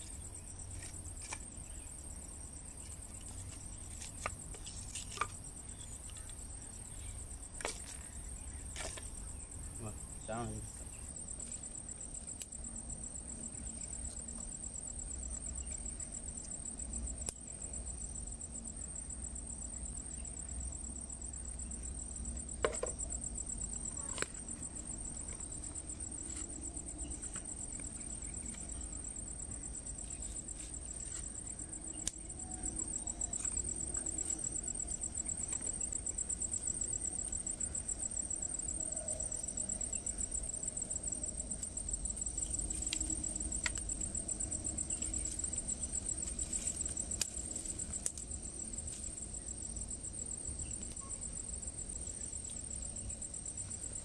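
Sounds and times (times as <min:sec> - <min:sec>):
insects trilling: 0:00.0 - 0:54.0
wood fire crackling: 0:44.8 - 0:49.2.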